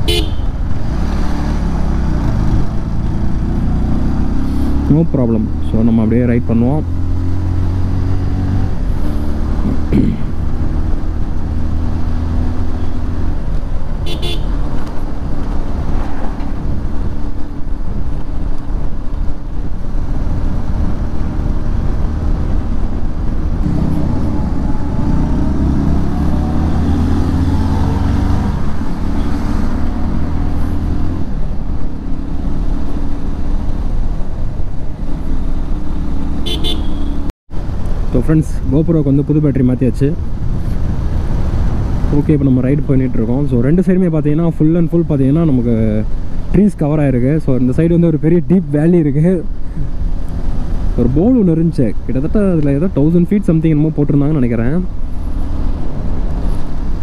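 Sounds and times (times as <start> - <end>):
motorcycle horn toots: 0.0 - 0.6, 14.0 - 14.6, 36.4 - 37.2
motorcycle engine revving: 0.0 - 17.4, 20.0 - 37.3.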